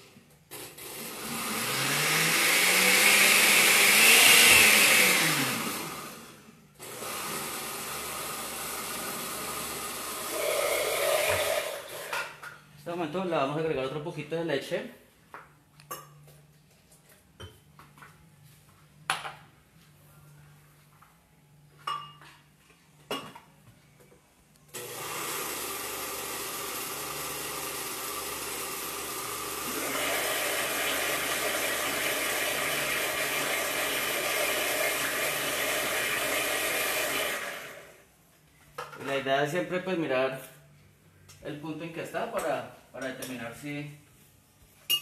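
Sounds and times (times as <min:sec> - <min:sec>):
blender running: 0:00.5 - 0:12.2, 0:24.8 - 0:38.1.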